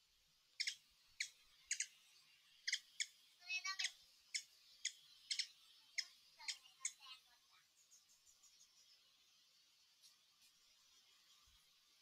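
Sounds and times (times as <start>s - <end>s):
small bird chirping: 0.0s - 12.0s
bird rattling trill: 0.6s - 2.0s, 2.6s - 7.0s.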